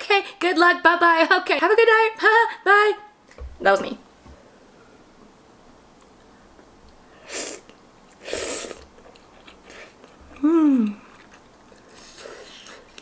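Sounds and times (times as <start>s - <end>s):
noodles slurped: 7.3s - 10.2s
chewing: 8.8s - 13.0s
person humming: 10.3s - 11.1s.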